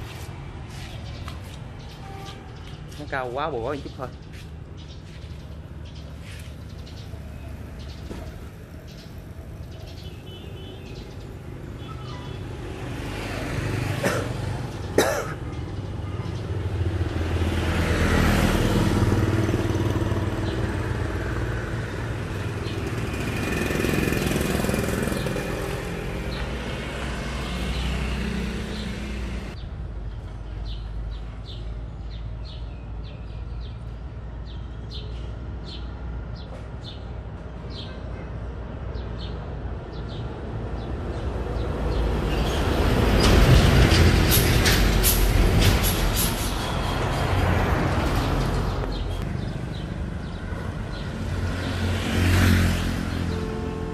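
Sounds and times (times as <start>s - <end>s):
small motorcycle engine running: 22.5s - 25.7s.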